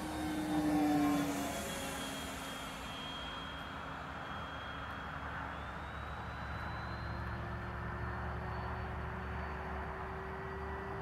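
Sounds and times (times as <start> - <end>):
model jet electric fan whooshing: 0.0 - 6.0.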